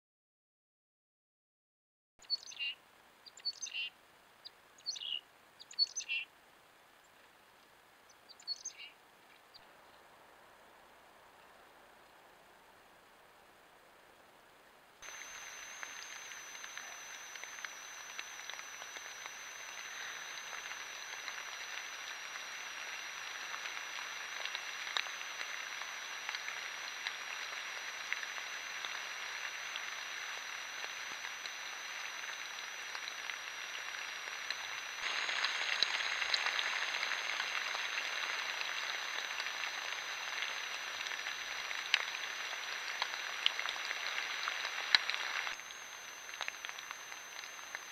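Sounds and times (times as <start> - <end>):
rain pattering on forest floor: 2.3 - 47.9
faint high whine: 14.9 - 47.9.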